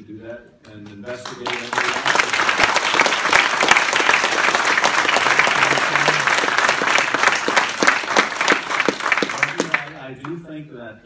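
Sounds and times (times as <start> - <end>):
audience applauding: 0.7 - 10.3.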